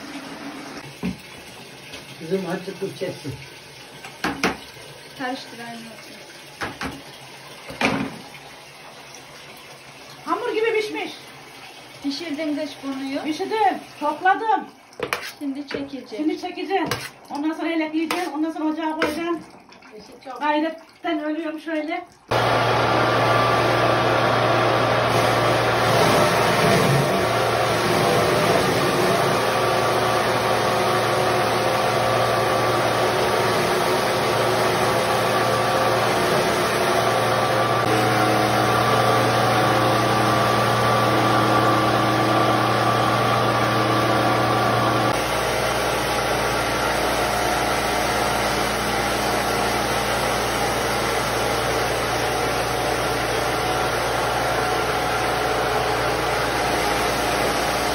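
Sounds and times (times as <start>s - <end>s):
pulping machine motor humming: 22.3s - 57.9s.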